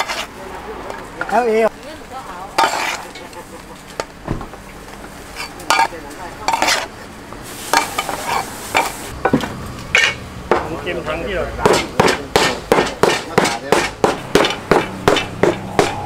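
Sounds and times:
cleaver scraping a wooden board: 0:00.0 - 0:00.3, 0:06.5 - 0:06.9
pounding: 0:11.6 - 0:16.0.

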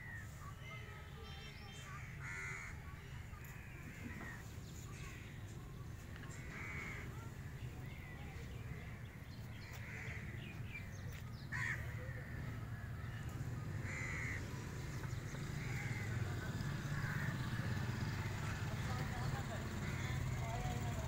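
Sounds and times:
crows cawing: 0:02.0 - 0:02.8, 0:06.3 - 0:07.2, 0:09.7 - 0:10.5, 0:11.5 - 0:12.4, 0:13.8 - 0:14.5, 0:15.6 - 0:16.2, 0:17.0 - 0:17.5, 0:19.8 - 0:20.5.

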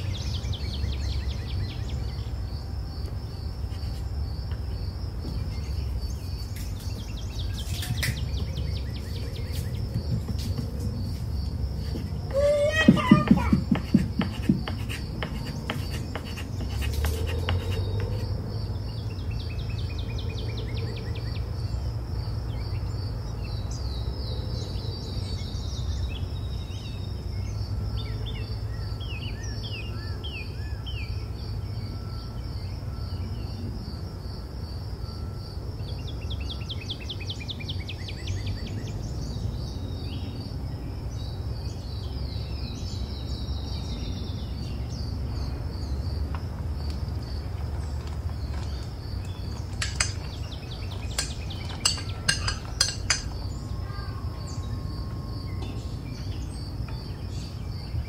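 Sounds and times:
high insect chirring: 0:00.0 - 0:20.8, 0:45.4 - 0:57.5.

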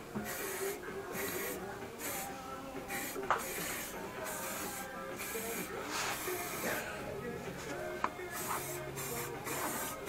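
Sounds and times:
aerosol spray can hissing: 0:00.2 - 0:02.3, 0:02.9 - 0:06.8, 0:08.3 - 0:10.0.

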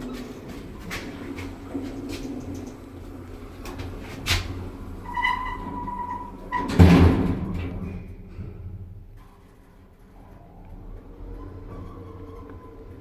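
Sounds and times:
doors shutting with heavy thud: 0:00.0 - 0:08.9
sliding doors closing: 0:00.0 - 0:13.0.

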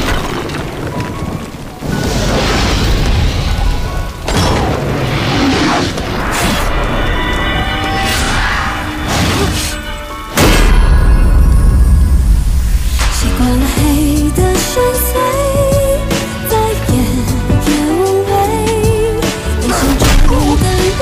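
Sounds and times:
dramatic music score: 0:01.2 - 0:21.0
booming hits: 0:09.1 - 0:13.6, 0:19.8 - 0:21.0.

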